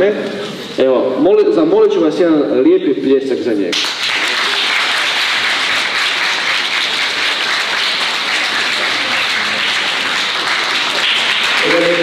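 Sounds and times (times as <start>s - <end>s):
crowd applauding: 3.7s - 12.0s.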